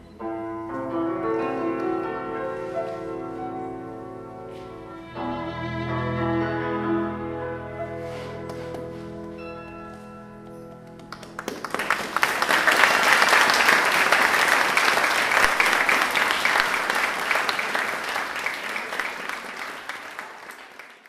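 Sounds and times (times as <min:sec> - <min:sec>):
held music chord: 0:03.6 - 0:11.1
audience applauding: 0:10.8 - 0:21.0.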